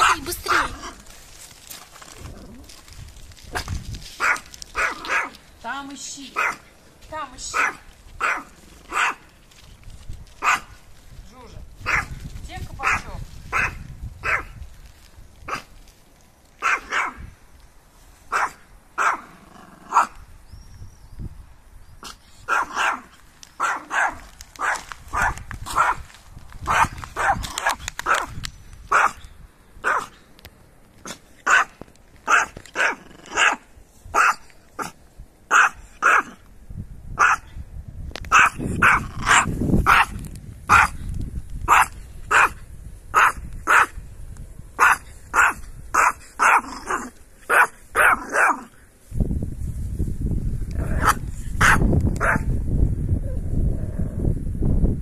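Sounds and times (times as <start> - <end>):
small dog barking: 4.2 - 5.4, 6.4 - 6.7, 7.5 - 9.3, 10.4 - 10.8, 11.8 - 12.2, 12.8 - 14.6, 16.6 - 17.2, 18.3 - 19.3, 19.9 - 20.2, 22.5 - 26.0, 26.7 - 28.3, 28.9 - 29.2, 29.8 - 30.2, 31.4 - 36.4, 37.2 - 37.5, 38.3 - 41.0, 41.7 - 44.0, 44.8 - 48.7, 50.9 - 52.5.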